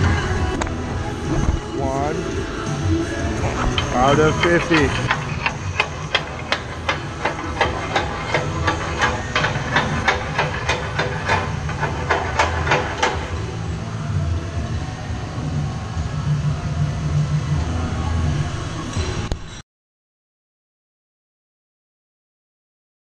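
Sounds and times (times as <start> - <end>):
low shop hum: 0.0 - 19.6
hammering on metal: 3.5 - 13.5.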